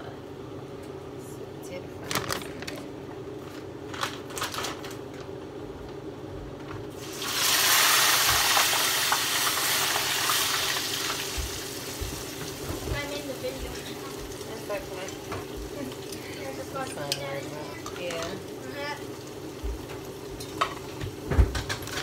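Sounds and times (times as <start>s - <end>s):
fish sizzling in hot oil: 7.0s - 22.0s.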